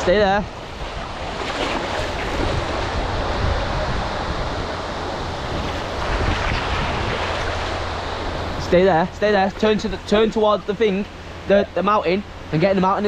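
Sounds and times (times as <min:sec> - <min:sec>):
wind buffeting microphone: 0:00.0 - 0:12.5
sea waves washing on shore: 0:00.0 - 0:13.0.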